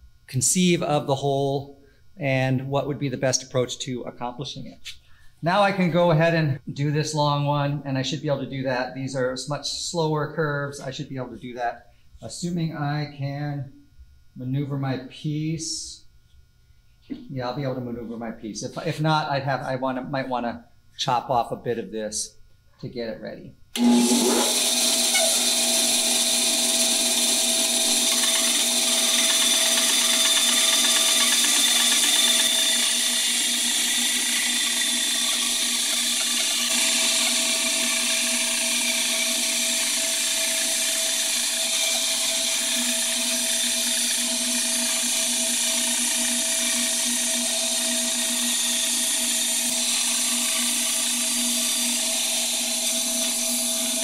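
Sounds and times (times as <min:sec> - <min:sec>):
band saw cutting wood: 0:23.8 - 0:54.0.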